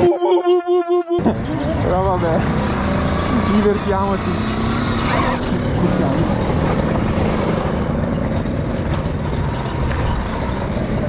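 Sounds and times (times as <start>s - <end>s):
tyres on dirt and gravel: 1.3s - 11.0s.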